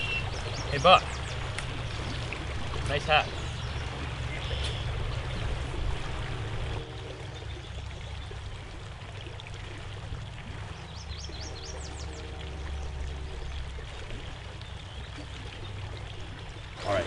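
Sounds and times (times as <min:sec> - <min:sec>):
bird chirps: 0:00.0 - 0:01.4
stream water rushing: 0:00.0 - 0:17.0.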